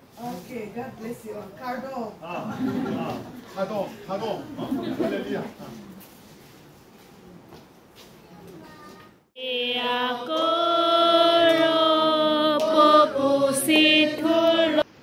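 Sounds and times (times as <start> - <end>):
voices singing a hymn: 9.4 - 15.0.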